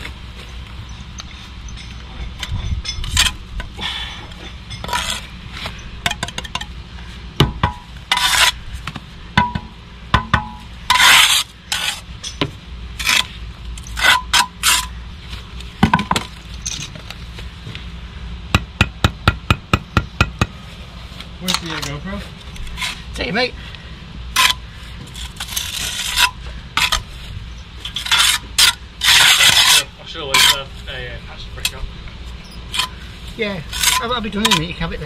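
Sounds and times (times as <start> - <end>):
hand tools clinking and knocking: 0.9 - 6.7, 15.8 - 17.2.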